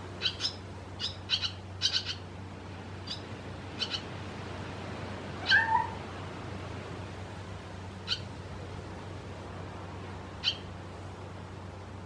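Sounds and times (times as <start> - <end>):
fledglings chirping: 0.2 - 2.2, 3.8 - 4.1
low slurred bird call: 5.4 - 6.0.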